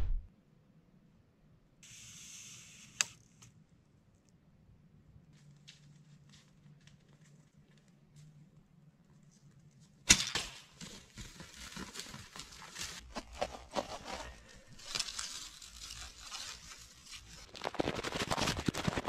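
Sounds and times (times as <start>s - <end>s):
twigs crackling and rustling: 10.8s - 18.8s.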